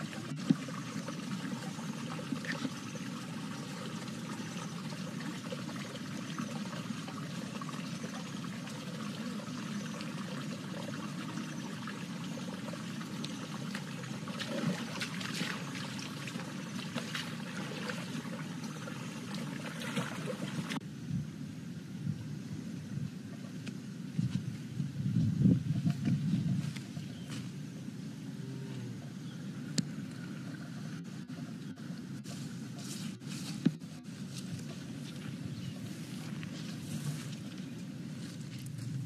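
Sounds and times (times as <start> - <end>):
stream trickling over stones: 0.0 - 20.8.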